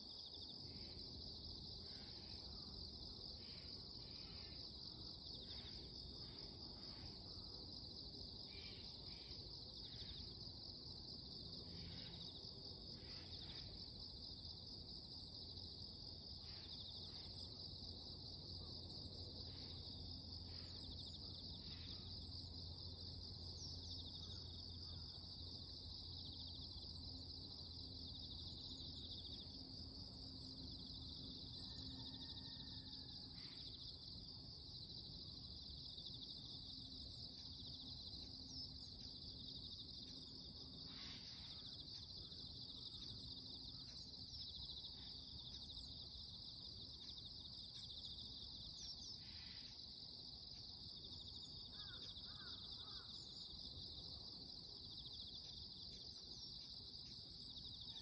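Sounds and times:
insects chorus: 0:00.0 - 0:58.0
short insect calls: 0:18.6 - 0:58.0.

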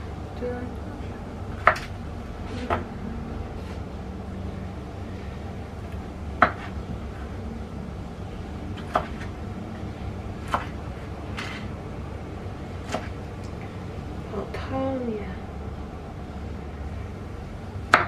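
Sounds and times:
low hum: 0:00.0 - 0:18.0
cleaver chopping on wooden board: 0:01.6 - 0:01.9, 0:06.4 - 0:06.7, 0:08.8 - 0:09.2.

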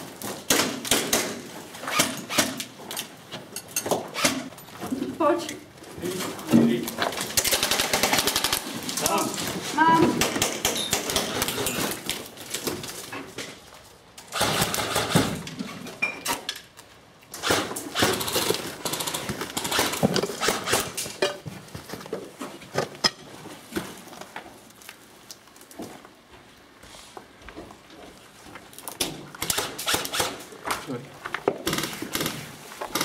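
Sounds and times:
airsoft guns firing bursts: 0:07.4 - 0:08.7, 0:14.3 - 0:15.4.

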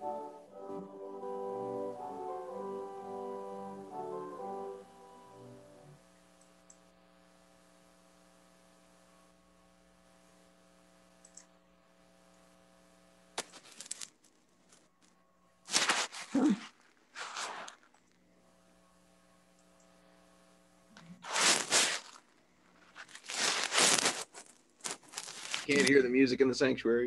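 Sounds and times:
brass note: 0:00.0 - 0:06.0
electrical hum: 0:00.0 - 0:26.9
short noise bursts: 0:21.2 - 0:22.3.

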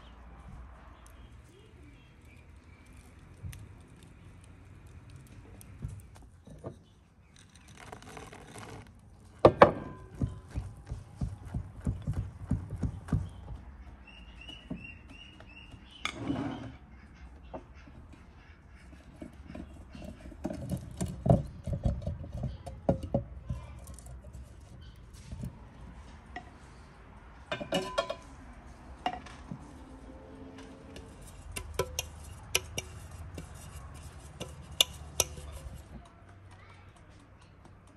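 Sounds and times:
bird chirping: 0:12.8 - 0:16.1
spoon scraping metal bowl: 0:30.9 - 0:35.9
whisk clicking against glass bowl: 0:34.4 - 0:35.8.

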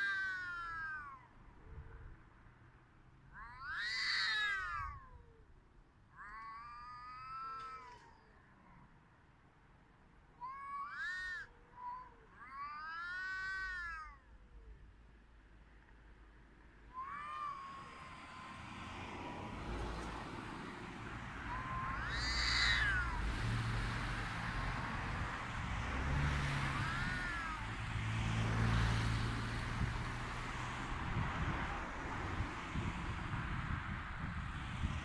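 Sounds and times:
cat yowling: 0:00.0 - 0:02.0, 0:03.3 - 0:05.5, 0:06.2 - 0:08.4, 0:10.4 - 0:14.8, 0:16.9 - 0:19.0, 0:21.2 - 0:23.4, 0:26.4 - 0:27.8.

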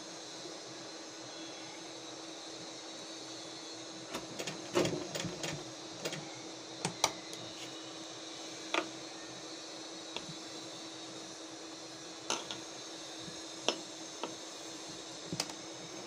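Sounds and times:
sewing machine stitching: 0:04.1 - 0:06.2.

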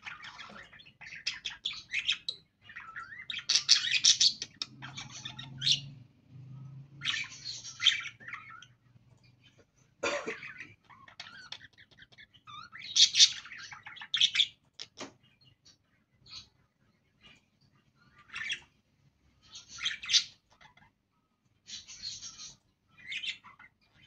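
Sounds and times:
budgerigars chattering: 0:00.0 - 0:06.0, 0:07.0 - 0:08.8, 0:10.0 - 0:16.6, 0:18.0 - 0:18.7, 0:19.4 - 0:21.0, 0:21.7 - 0:24.0.

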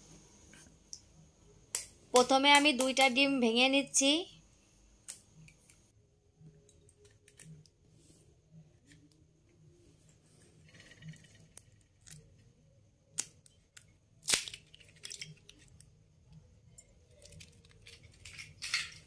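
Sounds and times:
shell crackling as pulled apart: 0:14.2 - 0:15.8.

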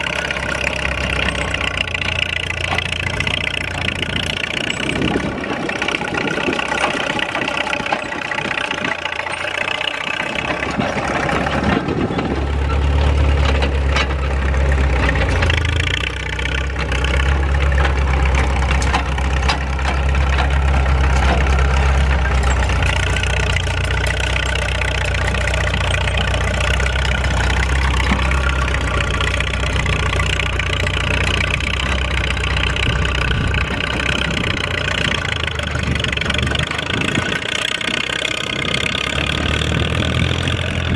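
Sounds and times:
diesel tractor engine under load: 0:00.0 - 0:40.9.

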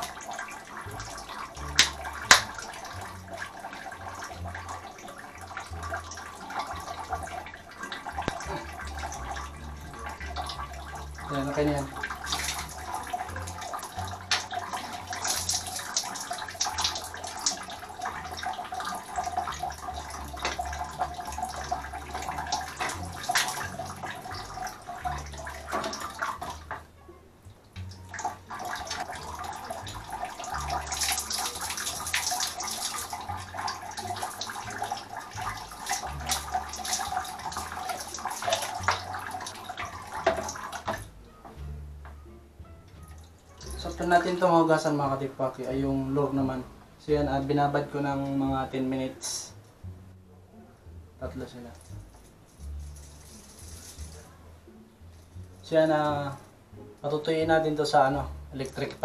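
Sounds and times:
water splashing in a plastic bucket: 0:00.0 - 0:26.9, 0:27.8 - 0:41.1.

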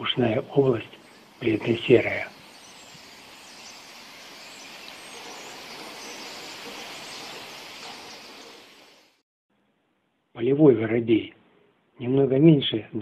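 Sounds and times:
distant bird chirps: 0:00.0 - 0:09.2
steady background hiss: 0:00.0 - 0:12.9.

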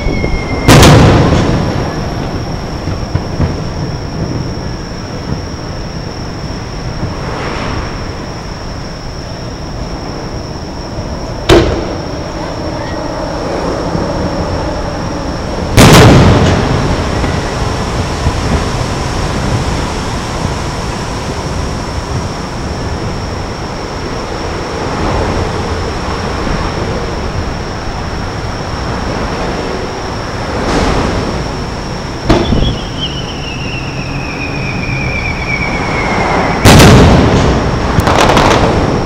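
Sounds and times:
whistle falling in pitch: 0:00.0 - 0:02.0, 0:32.3 - 0:36.7
loud firework boom: 0:00.0 - 0:06.2, 0:11.4 - 0:12.2, 0:15.7 - 0:23.2, 0:30.6 - 0:39.0
firework bangs: 0:00.0 - 0:08.6, 0:11.4 - 0:12.4, 0:15.7 - 0:23.4, 0:30.5 - 0:39.0
background rumble: 0:00.0 - 0:39.0.

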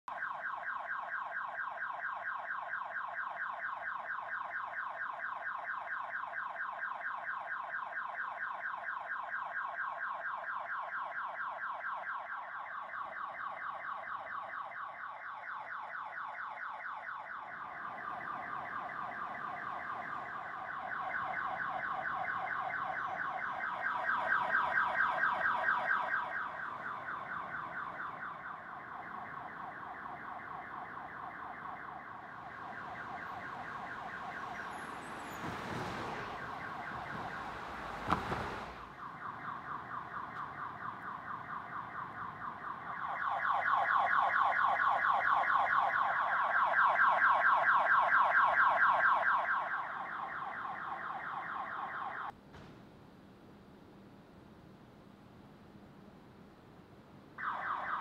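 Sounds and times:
car alarm pulsed tone: 0:00.1 - 0:52.3
car passing by: 0:32.3 - 0:39.0.

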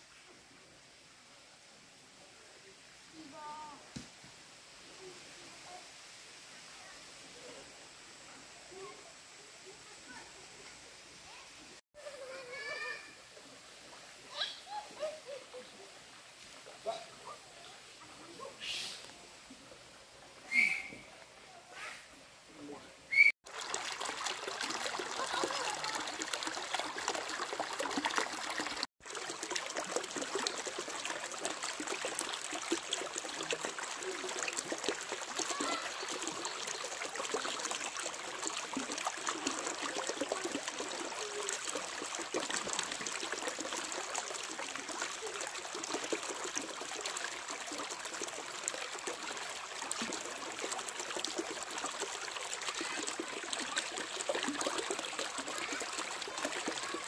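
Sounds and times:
stream trickling over stones: 0:23.1 - 0:57.0.

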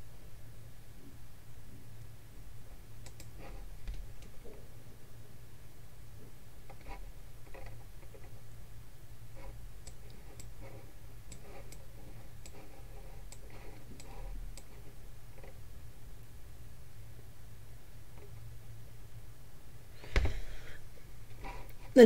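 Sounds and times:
steady low hum: 0:00.0 - 0:22.0
computer mouse clicks: 0:03.0 - 0:04.4, 0:09.8 - 0:10.6, 0:11.3 - 0:14.8.

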